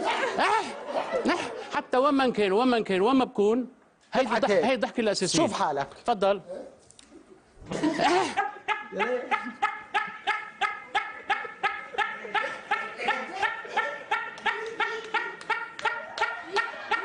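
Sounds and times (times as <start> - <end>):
man laughing in high bursts: 7.8 - 17.0.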